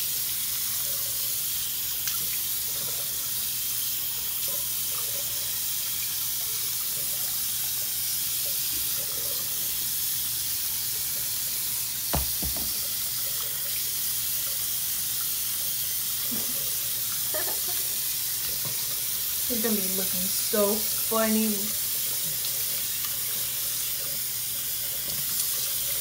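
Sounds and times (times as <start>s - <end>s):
faucet water splashing into sink: 0.0s - 26.0s
short knock: 12.1s - 12.8s.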